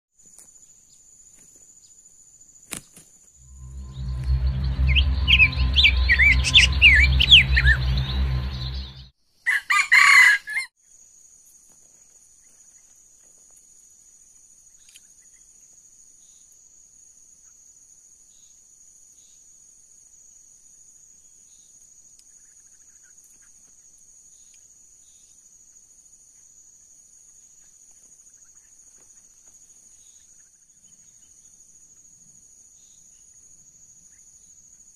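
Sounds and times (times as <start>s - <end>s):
pulsing high insect trill: 1.2s - 11.1s
booming intro with chirping calls: 2.8s - 9.1s
rooster crowing: 9.4s - 10.7s.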